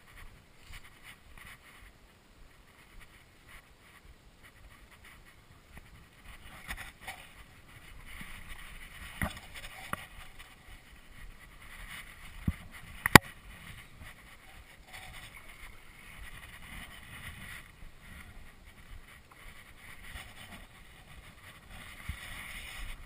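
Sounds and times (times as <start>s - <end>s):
wind: 0.0s - 23.0s.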